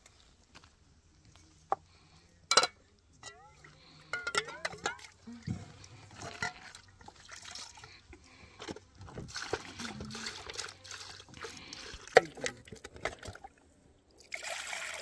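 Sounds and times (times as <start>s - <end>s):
knocks of can and pot: 4.1s - 5.1s
water pouring into metal pot: 14.2s - 15.0s.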